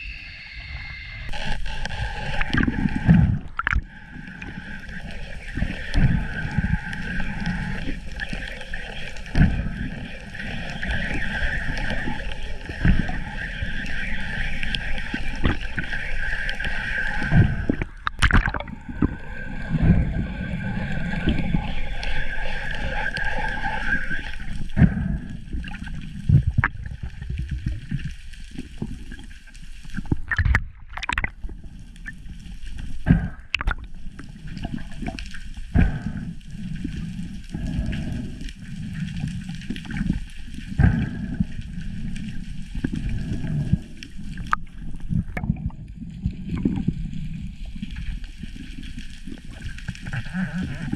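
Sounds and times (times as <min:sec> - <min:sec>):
high whine: 0:00.0 - 0:25.2
underwater rumble and gurgling: 0:00.0 - 0:50.9.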